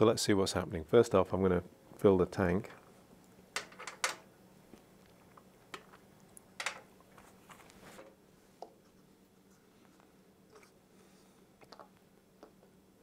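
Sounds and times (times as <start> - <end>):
faint steady hum: 0.0 - 13.0
small objects clicking on workbench: 6.6 - 6.9.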